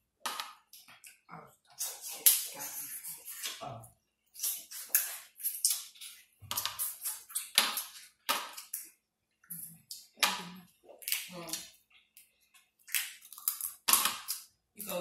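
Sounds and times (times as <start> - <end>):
wet smacking and sucking eating: 4.3 - 8.9.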